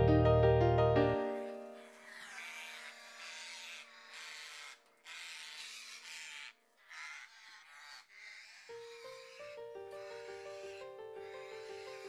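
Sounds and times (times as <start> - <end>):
faint musical chord: 0.0 - 1.8
parrot screeching: 1.8 - 12.0.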